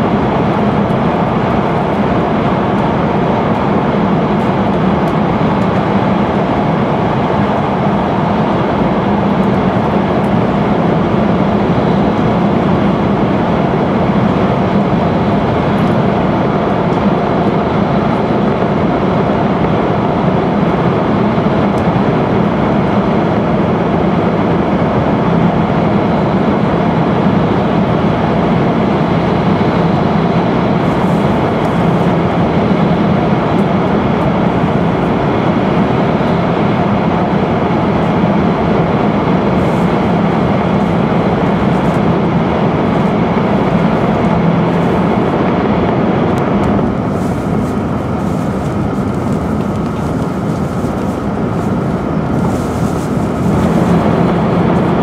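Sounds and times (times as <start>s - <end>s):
train cabin rumble: 26.0s - 55.0s.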